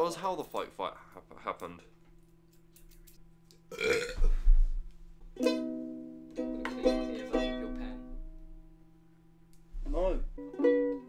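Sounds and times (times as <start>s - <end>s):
ukulele chords strummed: 5.4s - 8.7s, 9.9s - 11.0s.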